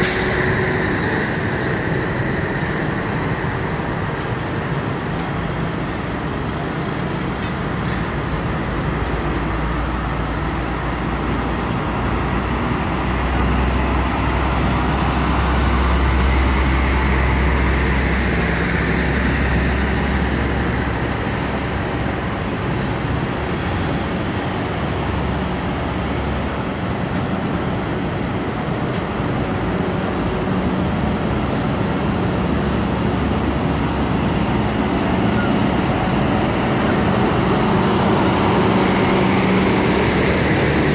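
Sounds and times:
diesel trucks rumbling past: 0.0s - 40.9s
road traffic noise: 0.0s - 40.9s.

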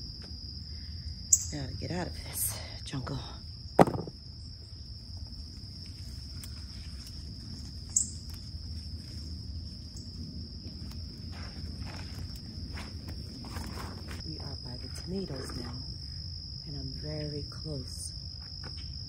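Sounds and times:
insects trilling: 0.0s - 19.0s
rustling leaves and branches: 3.6s - 16.4s
footsteps: 10.5s - 14.3s.

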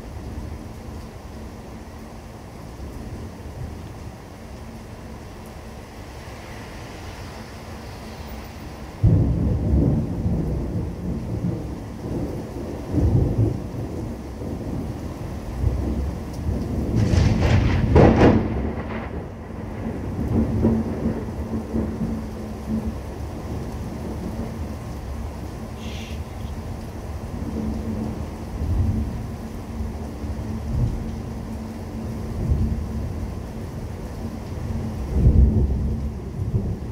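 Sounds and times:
steady rain: 0.0s - 36.9s
thunder clap and rumbles: 8.9s - 25.8s, 26.6s - 36.9s.

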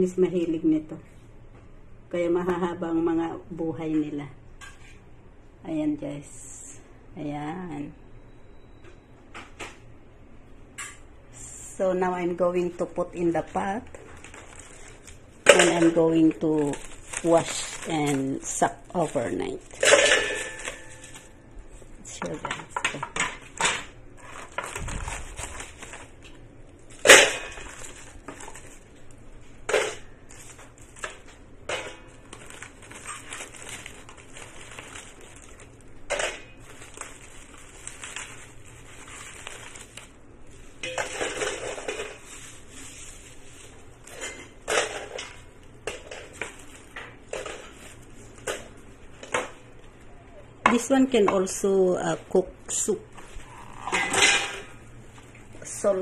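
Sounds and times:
dry nests crackling and rustling: 14.1s - 21.3s, 30.3s - 44.3s.

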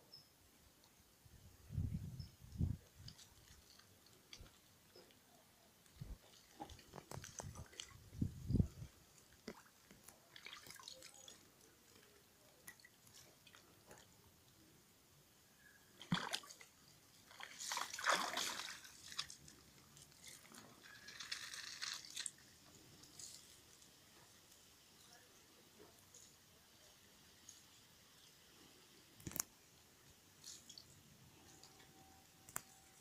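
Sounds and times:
water dripping: 2.6s - 5.2s, 5.8s - 14.6s, 16.0s - 23.9s, 29.2s - 32.8s
water splashing in paddling pool: 9.3s - 13.7s, 16.0s - 22.4s.

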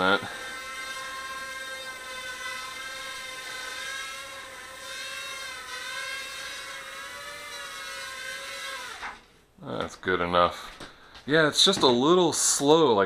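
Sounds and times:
drone motors whining: 0.0s - 9.3s.

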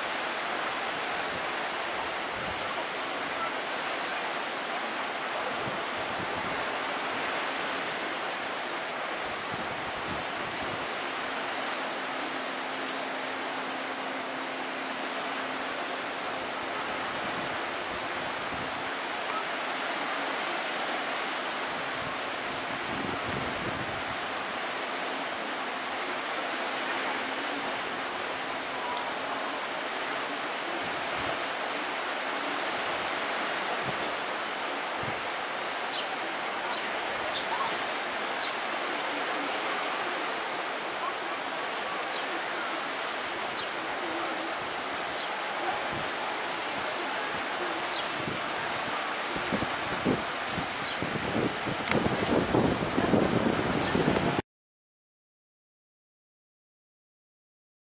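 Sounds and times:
sea washing on rocky shore: 0.0s - 54.4s
wind gusts thumping microphone: 47.4s - 54.4s.

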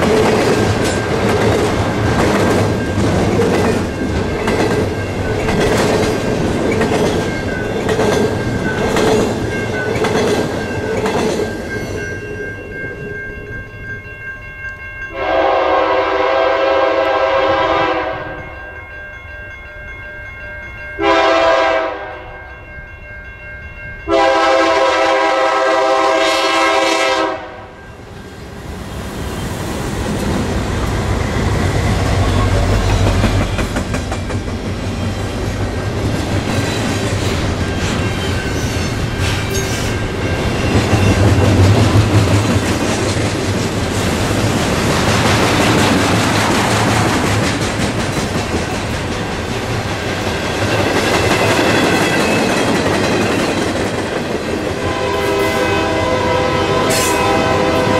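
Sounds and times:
train wheels clattering on rails: 0.0s - 12.0s, 29.4s - 55.7s
locomotive horn blasts: 15.1s - 18.4s, 21.0s - 22.4s, 24.1s - 27.8s, 54.8s - 57.9s.

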